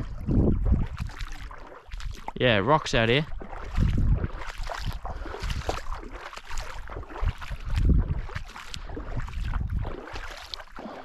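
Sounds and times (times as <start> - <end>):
wind on microphone: 0.0 - 2.4, 3.3 - 6.1, 6.8 - 10.3
wading through water: 0.0 - 11.0.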